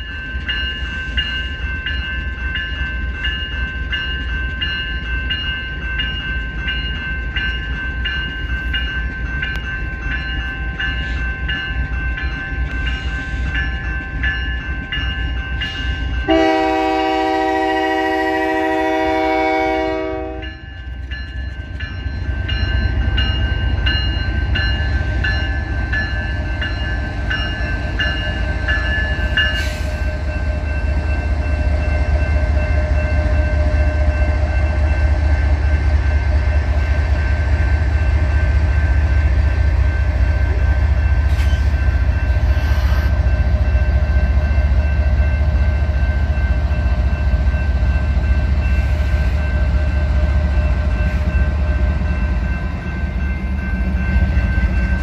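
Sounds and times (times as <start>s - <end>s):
locomotive horn blast: 16.3s - 20.5s.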